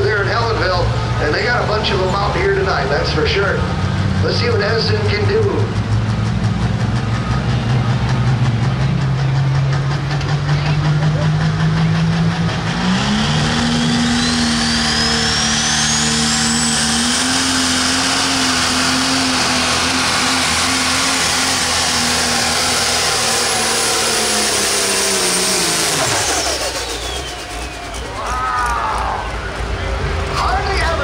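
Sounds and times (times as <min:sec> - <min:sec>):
diesel engine at full throttle: 0:00.0 - 0:31.0
turbo whistle: 0:26.4 - 0:28.3.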